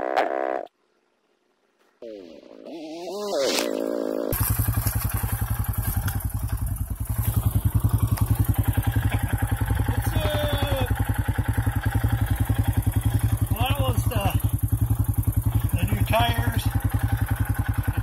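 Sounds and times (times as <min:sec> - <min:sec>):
quad engine idling: 0:04.4 - 0:18.0.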